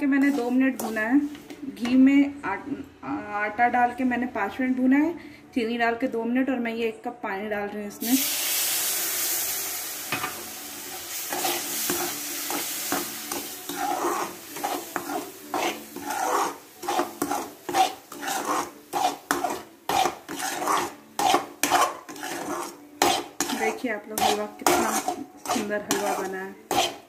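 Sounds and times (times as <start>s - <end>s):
steel spatula scraping pan: 0.1s - 1.4s, 10.9s - 27.0s
water sizzling in hot pan: 8.0s - 23.7s.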